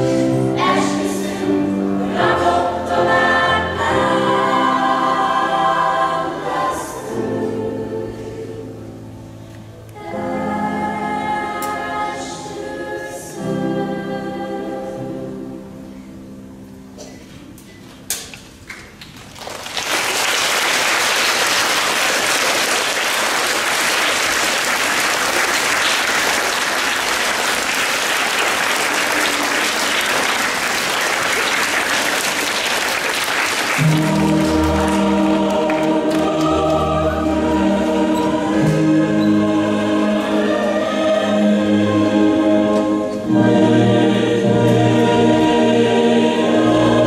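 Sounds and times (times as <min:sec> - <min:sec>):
choir singing long notes: 0:00.0 - 0:16.1, 0:20.6 - 0:47.0
audience applauding: 0:19.0 - 0:36.9.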